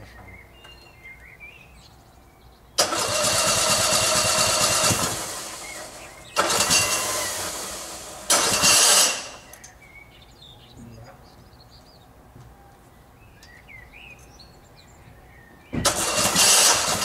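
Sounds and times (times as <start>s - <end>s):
mower engine starting and dying: 2.8s - 9.7s, 15.8s - 17.0s.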